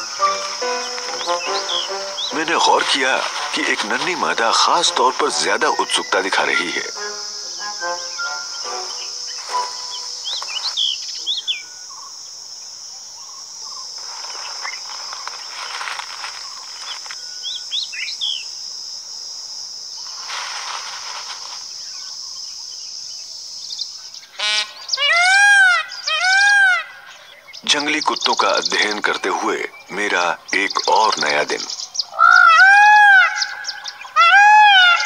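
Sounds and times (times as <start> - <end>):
bird calling rising and falling: 0.0 - 12.1, 24.4 - 27.6, 30.5 - 35.0
high-pitched insect drone: 0.0 - 26.4.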